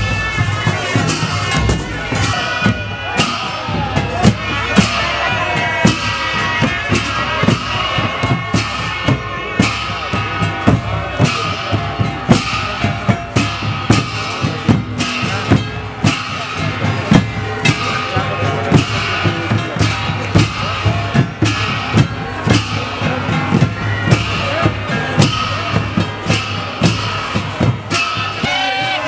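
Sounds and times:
wind instrument melody: 0.0 - 12.3, 27.9 - 29.0
drums beating steady rhythm: 0.0 - 29.0.

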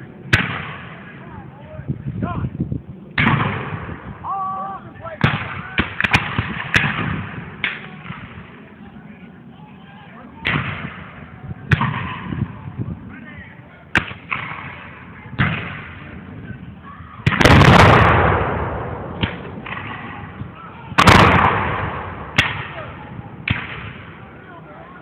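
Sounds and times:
musket shots: 5.2 - 8.3, 17.2 - 20.2, 21.0 - 24.1.

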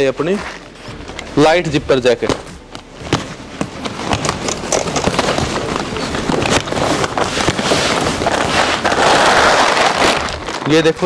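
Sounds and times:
plastic wrapping crackling and tearing: 3.1 - 11.0.

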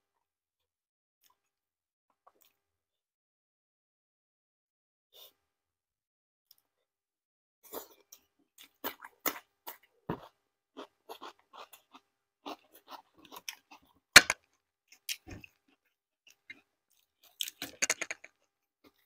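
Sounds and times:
person chewing crunchy food: 7.7 - 18.1.

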